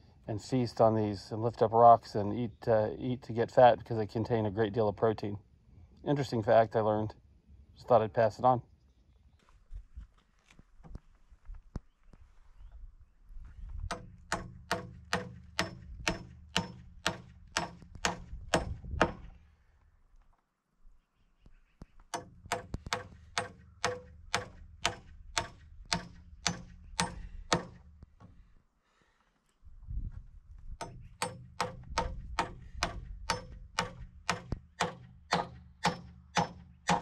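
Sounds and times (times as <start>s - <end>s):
hammer driving nails into wood: 13.9s - 19.4s, 22.1s - 28.4s, 30.8s - 37.0s.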